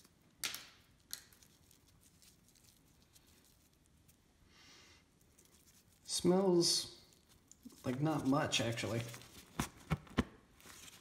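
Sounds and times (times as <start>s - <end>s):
soft rustle: 1.3s - 9.7s.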